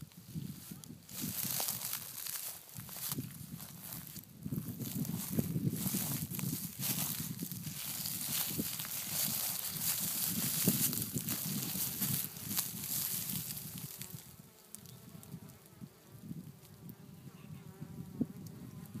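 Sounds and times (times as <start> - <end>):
honeybees buzzing: 1.1 - 19.0
rustling hiss: 4.9 - 17.0.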